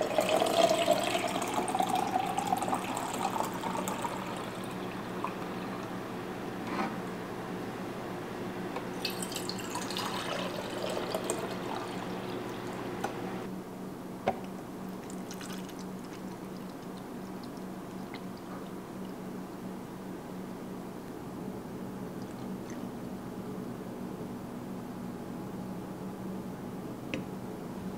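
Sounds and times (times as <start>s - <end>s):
tea trickling through a strainer: 0.0s - 5.9s, 9.0s - 12.8s, 14.9s - 19.1s.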